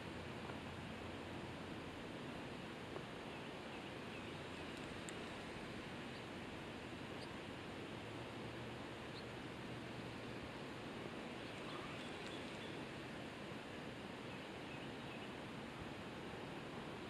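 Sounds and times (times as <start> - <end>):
low outdoor hiss: 0.0 - 17.0
faint bird chirps: 3.3 - 5.4, 7.1 - 7.4, 9.0 - 9.4, 11.2 - 12.9, 14.2 - 15.4.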